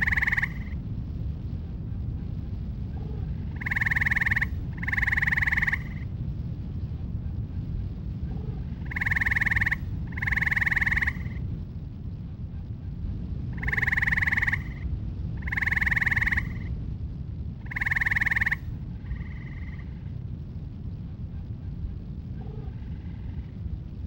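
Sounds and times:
treefrog trilling: 0.0s - 0.8s, 3.5s - 6.0s, 8.5s - 11.4s, 13.5s - 14.8s, 15.4s - 16.7s, 17.6s - 19.9s.

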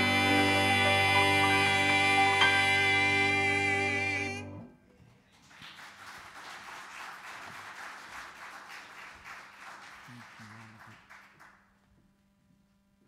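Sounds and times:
congregation applauding: 5.4s - 11.8s.

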